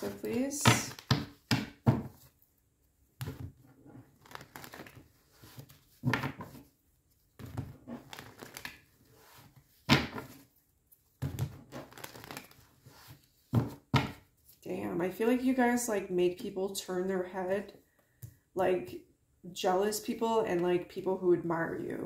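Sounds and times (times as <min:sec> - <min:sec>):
cards rustling and slapping on table: 0:04.2 - 0:06.7, 0:07.4 - 0:10.5, 0:11.2 - 0:14.6.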